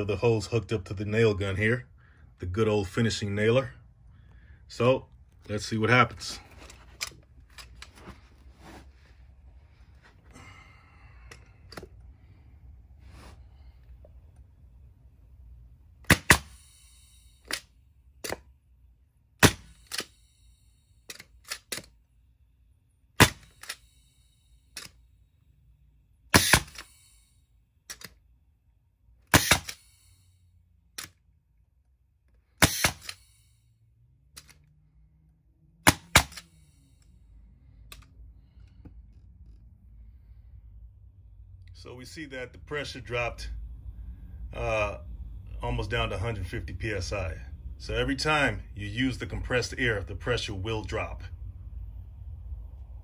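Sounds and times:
nail gun firing double crack: 16.1s - 16.6s, 19.4s - 20.1s, 23.2s - 23.8s, 26.3s - 26.9s, 29.3s - 29.8s, 32.6s - 33.2s, 35.8s - 36.5s.

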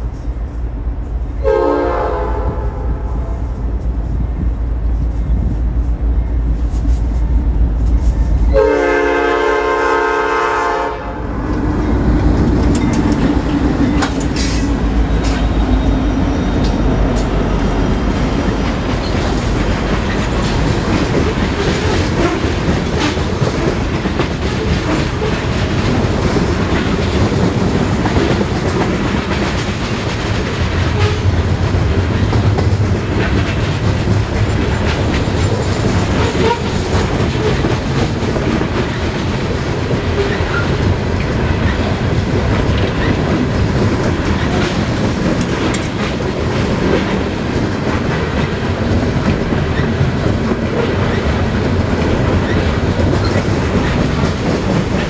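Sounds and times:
locomotive rumble: 0.0s - 55.0s
train horn chord: 1.4s - 3.5s, 8.5s - 11.3s, 31.0s - 31.3s
train wheels clacking over rail joints: 6.5s - 55.0s.

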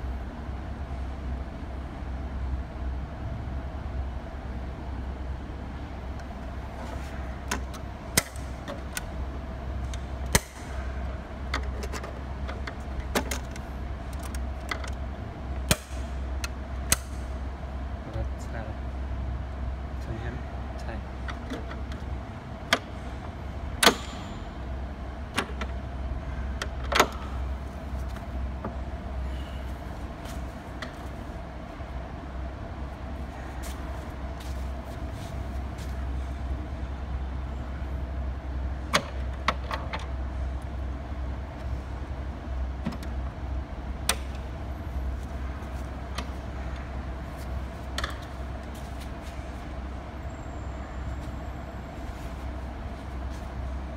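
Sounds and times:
steady low hum: 0.0s - 53.9s
sharp clicks and knocks: 47.9s - 48.3s.

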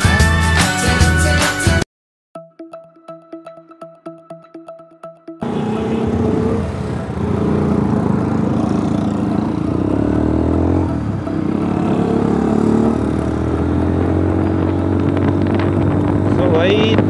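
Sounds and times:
motorcycle engine accelerating: 5.4s - 17.0s.

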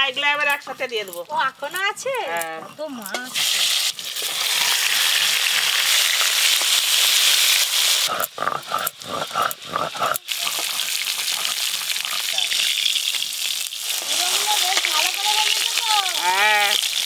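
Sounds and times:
grinding stone scraping: 0.0s - 13.3s
hot oil sizzling: 0.0s - 17.0s.

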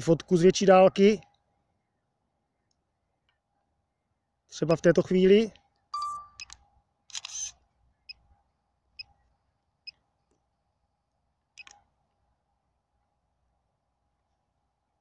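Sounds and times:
camera shutter sound: 6.4s - 7.6s.

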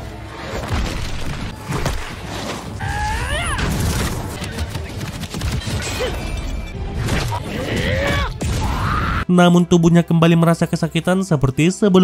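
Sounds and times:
music: 0.0s - 12.0s.

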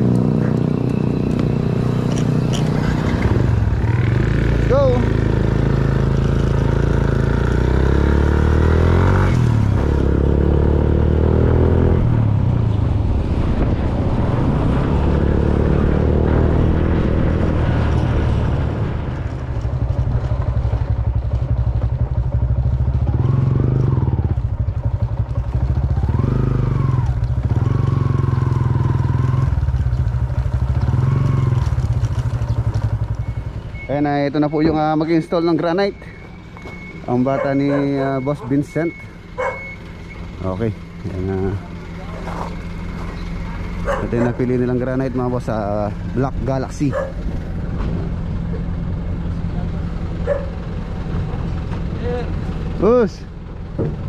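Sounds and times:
small motorcycle engine running: 0.0s - 12.0s, 19.6s - 33.9s, 39.1s - 53.6s.

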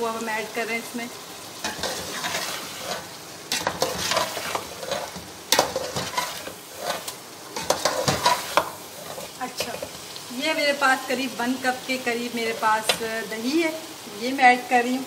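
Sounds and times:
food sizzling: 0.0s - 15.0s
metal spoon scraping a pot: 1.6s - 10.0s.

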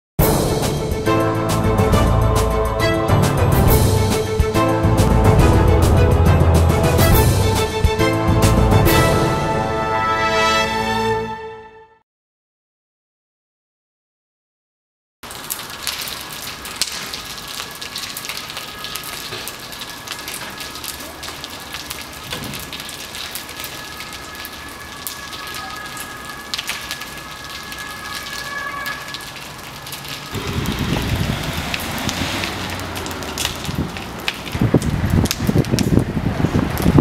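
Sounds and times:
fire crackling and popping: 15.2s - 37.0s
low rumble: 30.3s - 35.8s.

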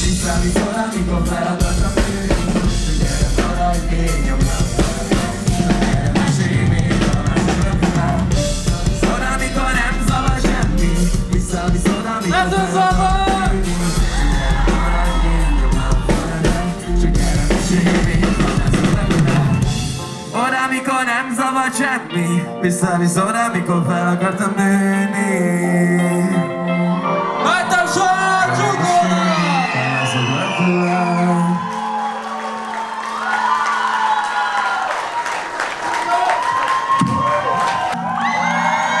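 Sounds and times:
drum kit beat: 0.0s - 20.7s
live band playing: 0.0s - 33.9s.

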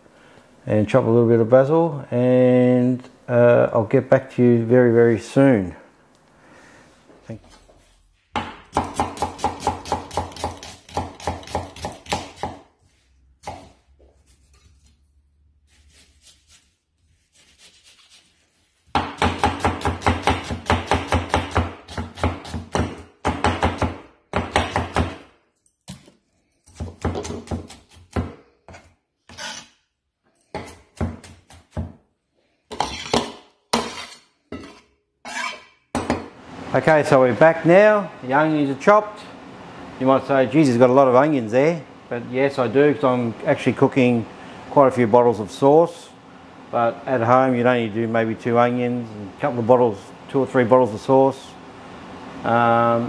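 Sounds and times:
knife chopping on wooden board: 8.3s - 12.7s, 13.4s - 13.8s, 18.9s - 25.2s, 26.7s - 28.9s, 30.6s - 32.0s.

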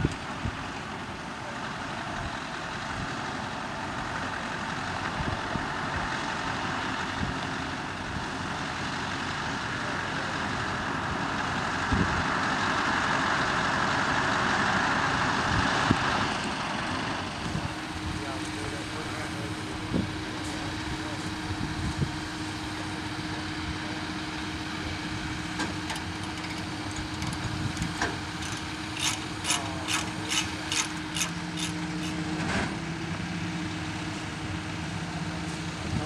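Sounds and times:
diesel truck engine at low speed: 0.0s - 36.0s
tires rolling on gravel: 25.7s - 32.9s.

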